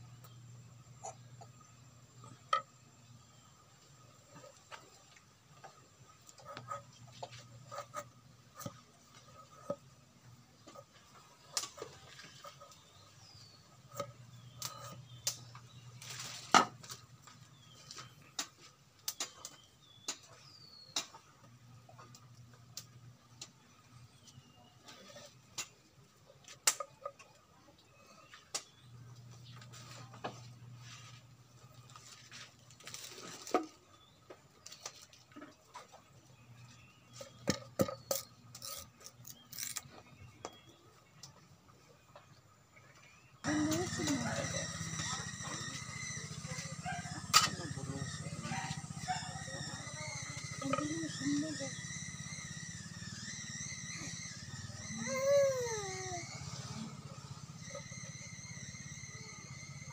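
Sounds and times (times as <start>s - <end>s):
bird chirps: 42.8s - 59.9s.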